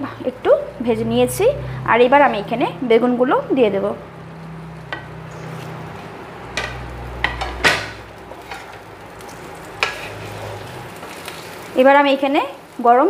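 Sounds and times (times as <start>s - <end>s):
vegetables sizzling in oil: 0.0s - 13.0s
spatula knocking against pan: 6.5s - 8.0s.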